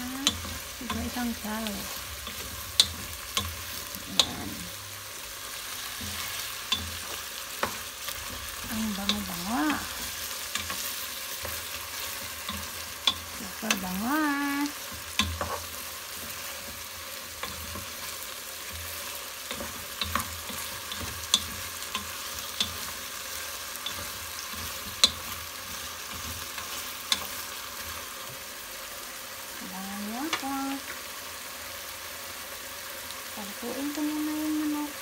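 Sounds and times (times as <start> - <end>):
chicken sizzling in oil: 0.0 - 35.0
spatula clicking against pot: 23.8 - 25.3.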